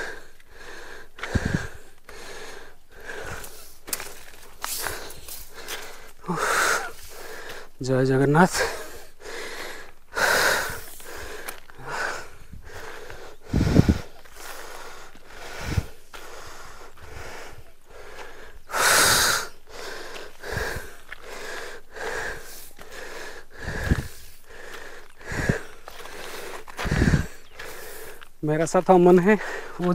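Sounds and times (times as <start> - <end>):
person breathing hard: 0.0 - 7.8, 8.4 - 28.3, 29.2 - 29.9
dull low thumps: 12.3 - 14.2.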